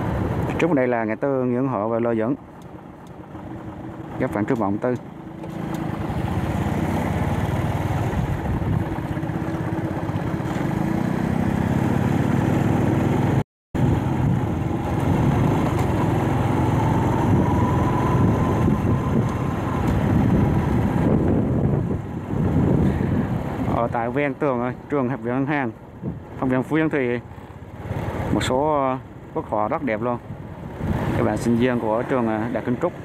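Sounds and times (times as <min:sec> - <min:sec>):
road and wind noise: 0:00.0 - 0:33.0
motorbike engine running: 0:02.4 - 0:23.7.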